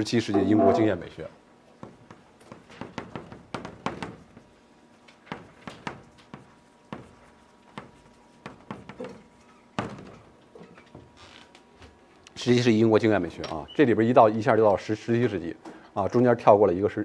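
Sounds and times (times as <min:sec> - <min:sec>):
chalk writing on chalkboard: 0:05.3 - 0:09.2.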